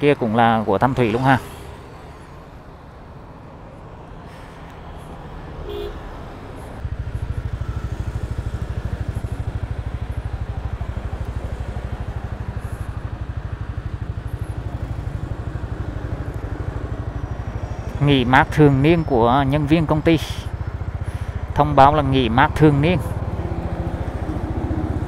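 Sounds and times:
street noise: 0.0 - 25.0
motorcycle engine idling: 6.8 - 25.0.

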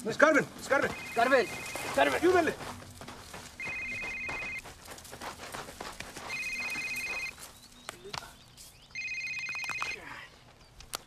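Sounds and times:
telephone ringing: 0.8 - 2.3, 3.6 - 4.6, 6.3 - 7.3, 8.9 - 10.0.

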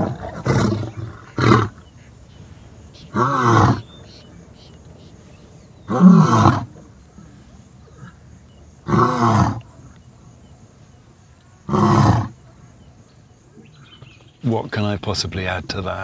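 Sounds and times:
lion roaring: 0.0 - 1.9, 3.0 - 4.5, 5.1 - 8.2, 8.8 - 9.8, 11.6 - 12.4.

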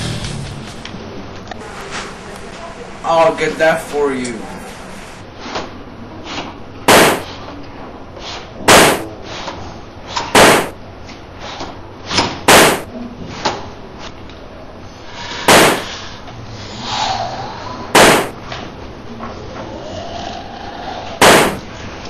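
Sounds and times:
gunshots: 6.9 - 7.3, 8.7 - 9.1, 10.4 - 10.8, 12.5 - 12.9, 15.5 - 16.0, 18.0 - 18.4, 21.2 - 21.7.

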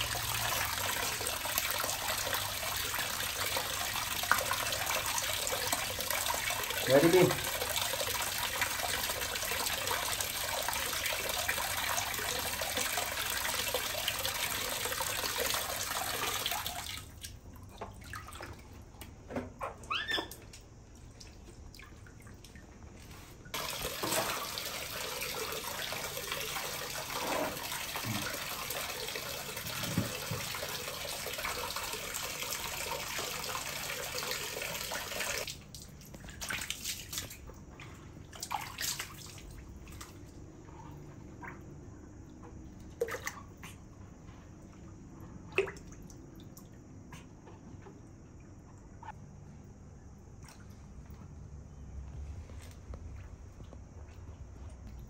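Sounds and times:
tap water splashing into basin: 0.0 - 19.7, 23.5 - 40.2, 42.3 - 43.9, 45.5 - 48.0
brief squeaks: 19.6 - 20.4.

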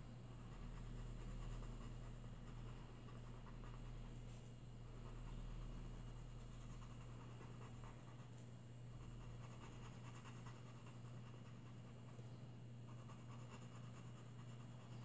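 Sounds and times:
steady low hum: 0.0 - 15.0
coloured pencil scratching paper: 0.4 - 4.1, 9.0 - 12.2, 12.9 - 15.0.

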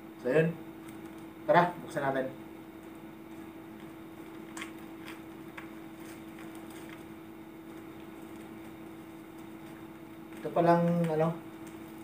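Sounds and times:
steady hum: 0.0 - 12.0
plastic wrapping crinkling: 3.2 - 12.0.

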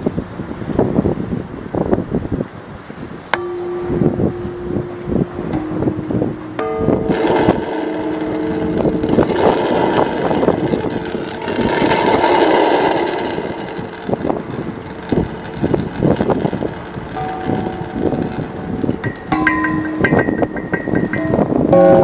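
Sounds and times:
bronze bell struck with mallet: 3.4 - 11.4, 17.1 - 22.0
rushing noise: 3.4 - 22.0.

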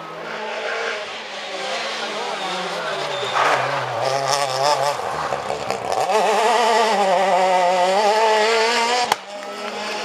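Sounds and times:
rally car engine accelerating: 0.0 - 10.0
sharp crack: 3.3 - 4.3.

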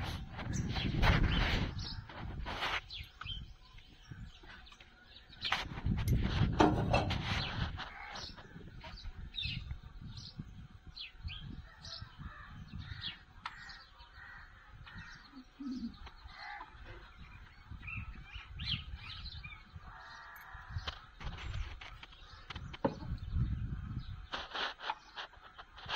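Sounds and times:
birds chirping: 0.0 - 25.9
low bird call: 11.7 - 23.5.

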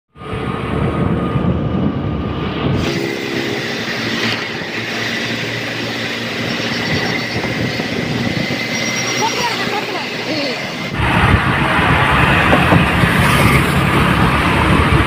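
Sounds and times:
road and wind noise: 0.1 - 15.0
thin high tone: 2.8 - 10.9.

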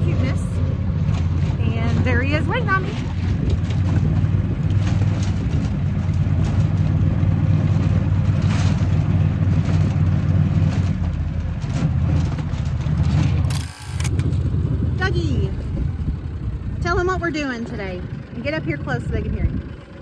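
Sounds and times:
wind rushing over microphone: 0.0 - 19.9
utility vehicle engine running: 0.0 - 20.0.

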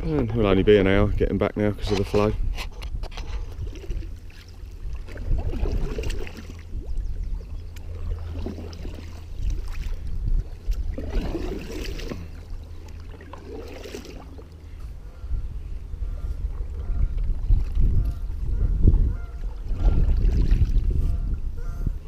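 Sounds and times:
low rumble: 0.0 - 22.0
paddle strokes splashing water: 3.3 - 14.9, 19.2 - 21.2.

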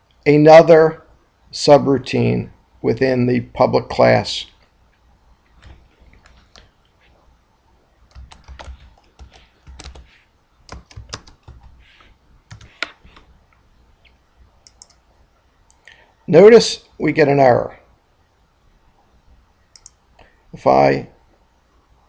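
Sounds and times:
keyboard typing: 8.1 - 13.4, 14.6 - 15.0.

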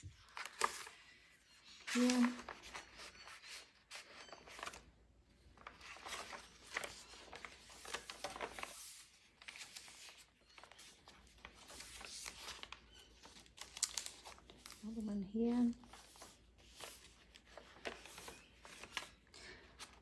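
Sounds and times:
paper pages rustling: 0.0 - 20.0.

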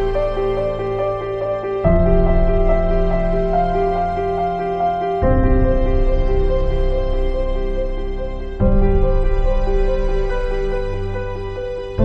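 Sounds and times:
soft music of sustained chords: 0.0 - 12.0.

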